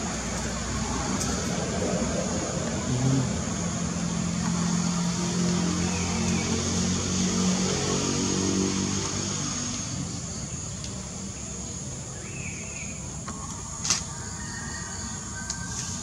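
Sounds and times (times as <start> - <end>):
vehicle engine running: 0.0 - 10.7.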